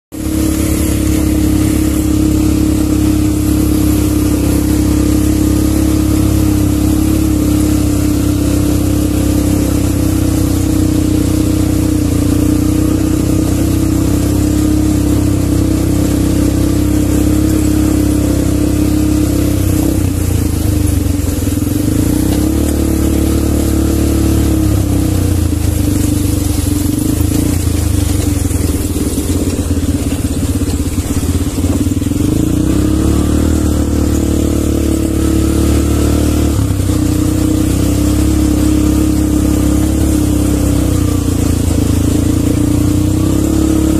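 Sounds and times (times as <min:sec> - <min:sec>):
quad bike engine running: 0:00.0 - 0:43.9.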